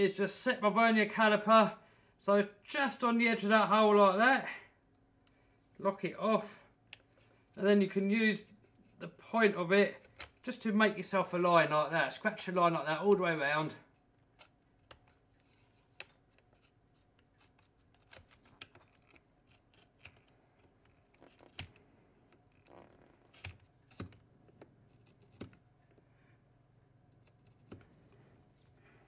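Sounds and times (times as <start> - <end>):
caliper scratching and clicking: 13.9 - 26.0, 27.1 - 28.2.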